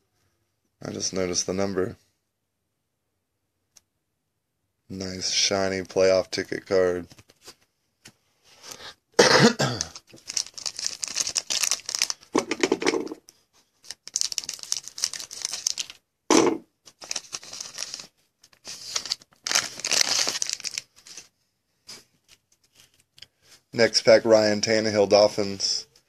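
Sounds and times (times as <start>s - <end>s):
person coughing: 9.2s - 10.0s
foil wrapper crinkling and tearing: 9.6s - 13.2s, 13.8s - 16.0s, 16.9s - 21.3s.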